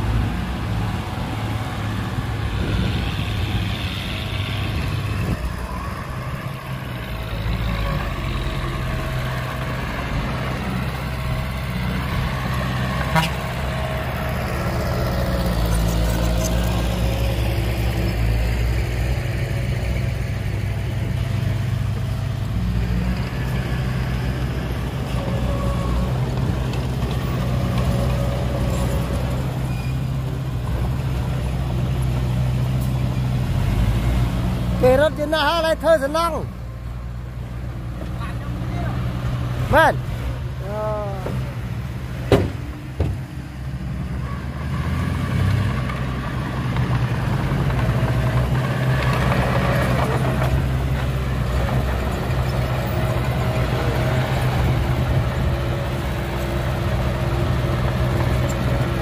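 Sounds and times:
heavy diesel engine running: 0.0s - 59.0s.

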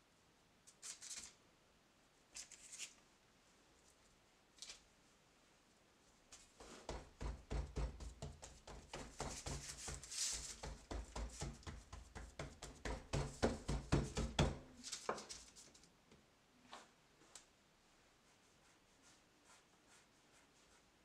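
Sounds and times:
fingertips thumping soft dough: 6.6s - 14.8s.

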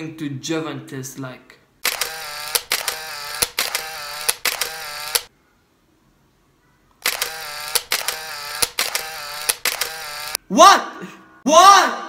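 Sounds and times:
camera shutter click and whir: 1.8s - 5.3s, 7.0s - 10.4s.

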